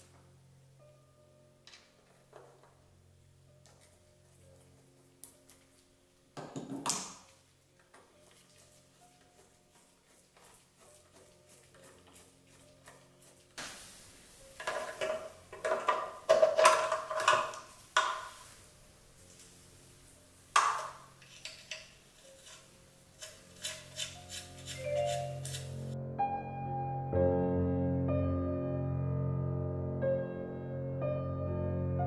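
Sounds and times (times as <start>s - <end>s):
tools clanking on metal: 14.6s - 18.4s, 20.6s - 22.6s.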